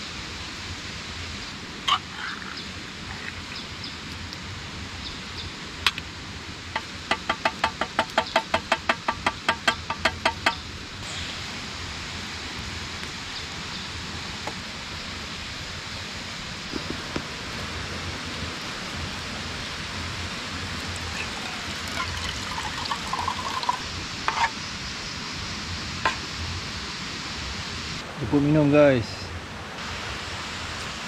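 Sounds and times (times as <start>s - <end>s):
river rushing: 11.0s - 24.2s
water pouring into a cup: 20.6s - 23.8s.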